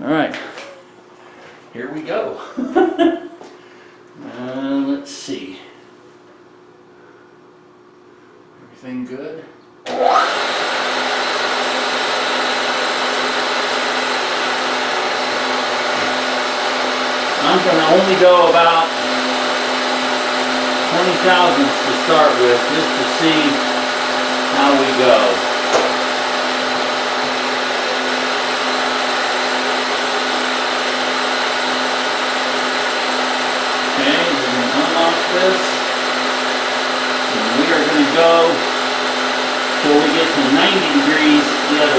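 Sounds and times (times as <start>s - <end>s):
milling machine running: 9.9s - 41.9s.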